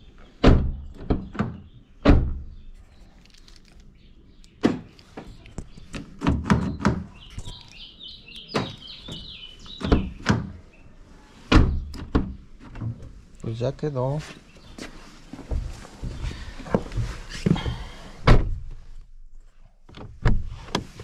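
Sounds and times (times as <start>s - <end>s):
car door clunks and thuds: 0.4s - 2.6s, 8.6s - 10.6s, 11.5s - 13.1s, 15.5s - 18.8s, 19.9s - 21.0s
bird chirping: 1.2s - 12.5s, 13.3s - 15.1s.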